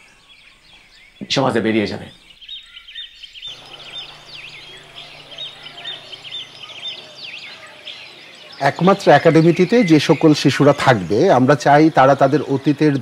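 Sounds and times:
birds chirping: 0:00.0 - 0:13.0
low steady hum: 0:03.5 - 0:09.5.

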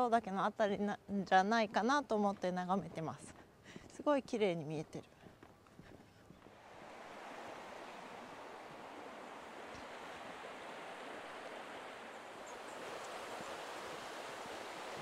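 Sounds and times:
stream running water: 0:06.5 - 0:15.0.

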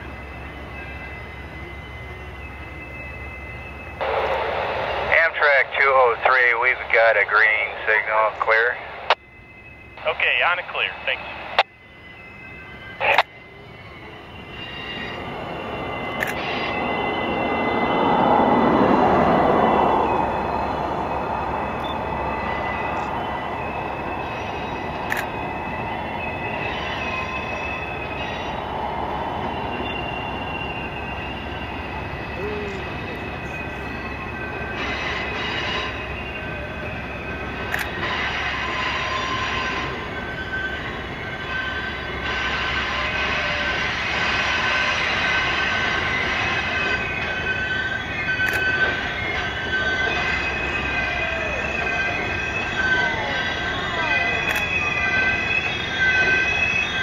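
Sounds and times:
train wheels rumbling: 0:00.0 - 0:57.0
wheel flanges squealing: 0:11.9 - 0:57.0.

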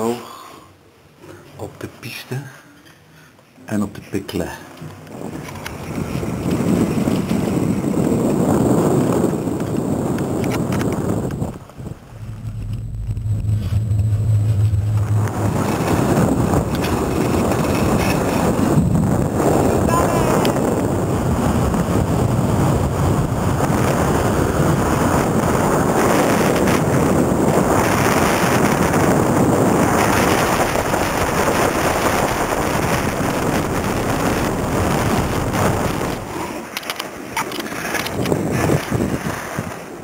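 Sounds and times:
wind on microphone: 0:04.8 - 0:40.0
skis scraping over snow: 0:05.7 - 0:19.7, 0:23.9 - 0:40.0
sharp clicks: 0:36.7 - 0:38.4.

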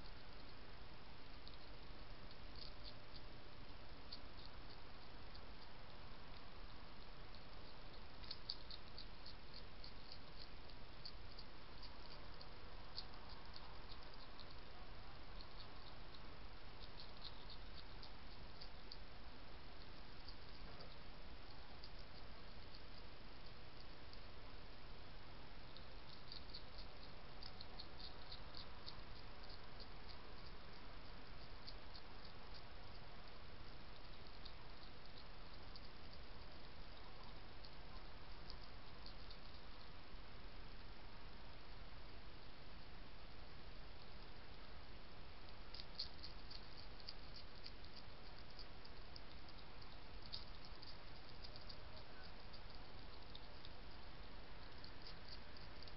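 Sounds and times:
steady hiss: 0:00.0 - 0:55.9
hedgehog crunching dry kibble: 0:15.4 - 0:21.1, 0:25.6 - 0:40.0, 0:45.3 - 0:55.9.

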